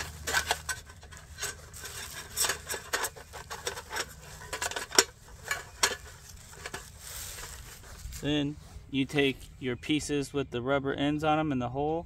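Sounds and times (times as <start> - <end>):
metal table parts clinking: 0.0 - 6.9.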